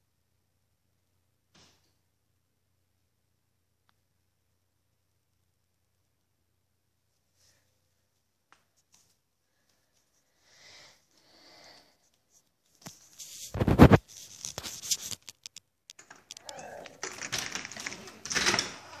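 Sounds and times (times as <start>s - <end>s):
door blinds rattling: 16.0s - 19.0s.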